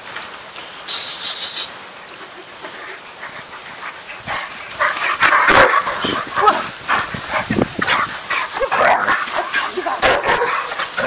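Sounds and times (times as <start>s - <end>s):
short hiss: 0.8s - 1.8s
dog yelping barks: 5.4s - 6.6s.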